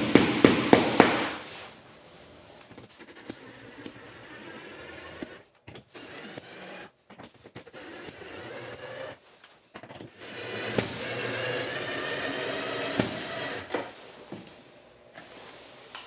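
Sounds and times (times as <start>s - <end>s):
cordless drill motor whining: 4.4s - 6.9s, 7.7s - 9.2s, 10.2s - 13.7s.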